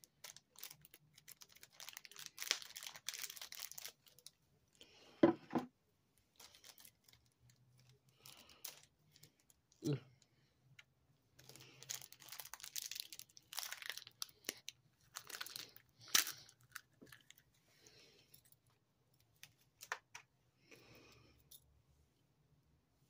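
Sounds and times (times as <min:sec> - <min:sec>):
plastic wrap crinkling: 0:00.0 - 0:04.4, 0:06.3 - 0:09.6, 0:11.4 - 0:17.4.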